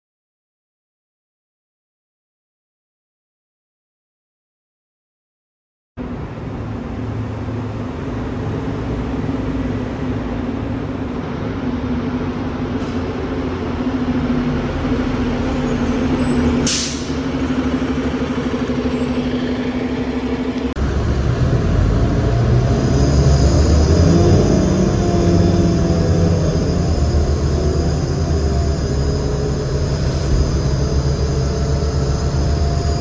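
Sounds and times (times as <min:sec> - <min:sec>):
bus diesel engine whine: 0:06.0 - 0:33.0
deep engine rumble: 0:06.0 - 0:33.0
air brake hiss: 0:16.6 - 0:17.2.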